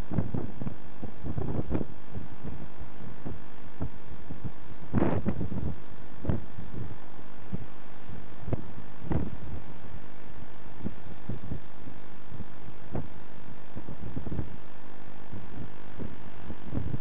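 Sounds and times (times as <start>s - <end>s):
steady hum: 0.0s - 17.0s
wind buffeting microphone: 15.3s - 17.0s.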